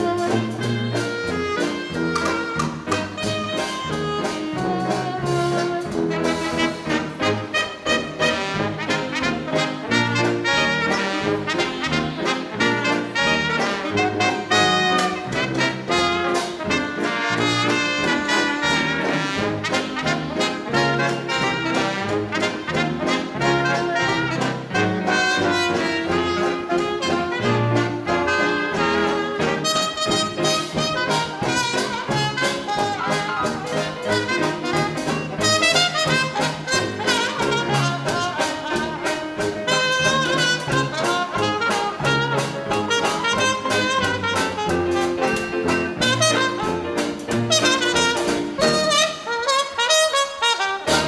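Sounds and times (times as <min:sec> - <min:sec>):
drums: 0:00.0 - 0:51.0
trombone: 0:00.0 - 0:51.0
trumpet: 0:00.0 - 0:51.0
sousaphone bass notes: 0:32.4 - 0:35.5.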